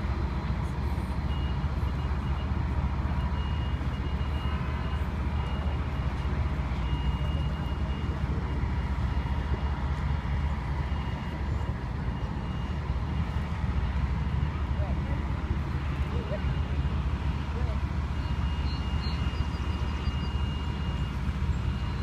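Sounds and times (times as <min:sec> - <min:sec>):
idling heavy trucks: 0:00.0 - 0:22.0
passing road traffic: 0:00.0 - 0:22.0
faint high beeping: 0:18.1 - 0:22.0.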